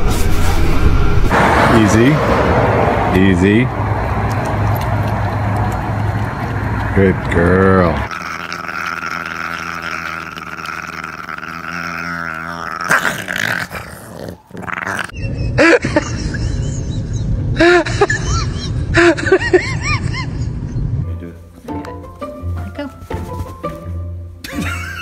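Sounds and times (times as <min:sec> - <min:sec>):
dogs growling: 0:04.4 - 0:15.2.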